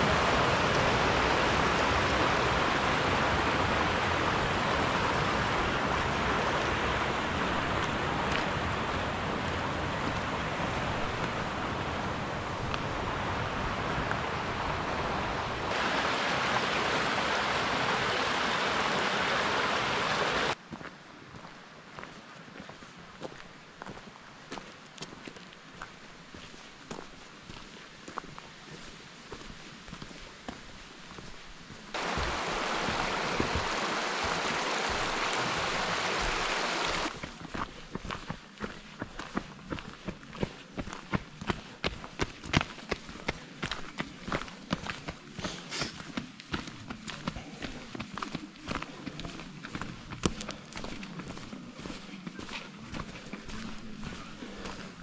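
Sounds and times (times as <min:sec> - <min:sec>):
stream rushing over rocks: 0:00.0 - 0:20.6, 0:31.9 - 0:37.5
footsteps on gravel: 0:29.3 - 0:55.0.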